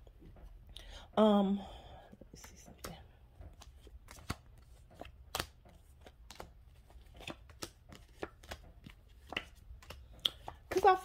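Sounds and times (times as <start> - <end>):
cards being shuffled: 2.4 - 11.0.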